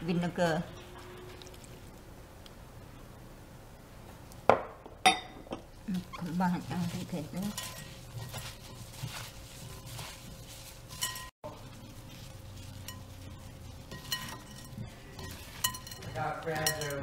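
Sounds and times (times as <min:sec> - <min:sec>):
vegetables tossed in a glass bowl: 0:06.0 - 0:17.0
hands clinking against glass: 0:14.0 - 0:17.0.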